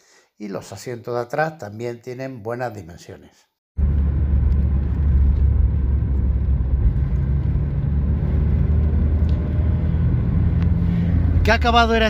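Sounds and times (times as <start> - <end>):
car engine cruising: 3.8 - 12.0
road rumble: 3.8 - 12.0.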